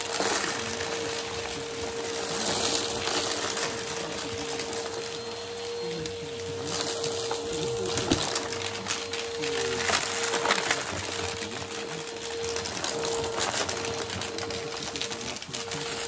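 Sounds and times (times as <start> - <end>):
vacuum cleaner running over carpet: 0.0 - 16.0.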